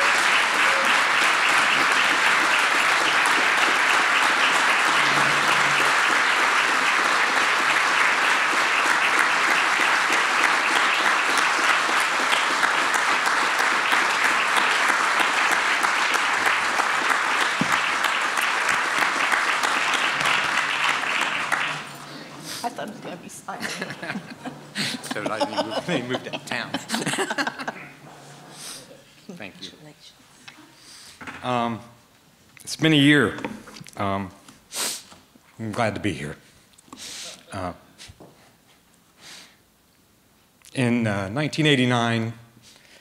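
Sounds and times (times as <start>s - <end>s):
audience applauding: 0.0s - 22.4s.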